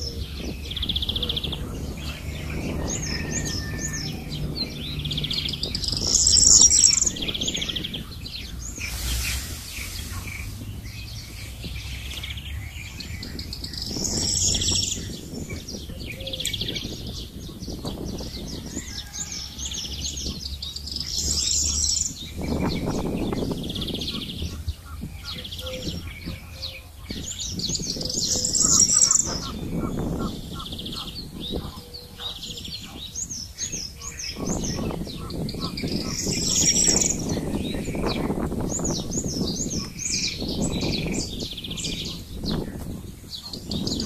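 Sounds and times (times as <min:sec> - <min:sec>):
low rushing noise: 0:00.0 - 0:15.6
songbirds chirping and singing: 0:00.0 - 0:44.0.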